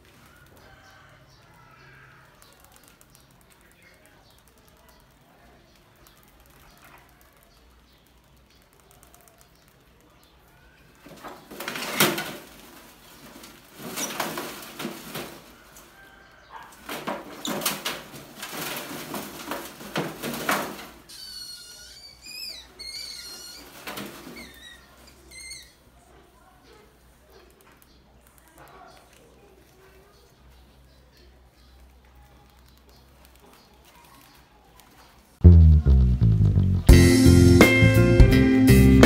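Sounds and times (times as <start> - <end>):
rats scrabbling in metal trap: 11.0 - 25.6
rats squeaking: 21.0 - 26.0.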